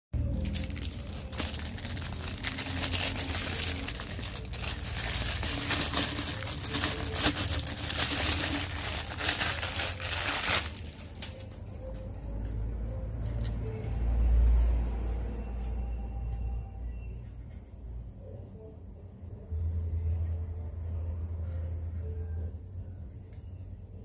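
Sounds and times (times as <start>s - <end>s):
plastic wrapping crinkling: 0.2s - 12.2s.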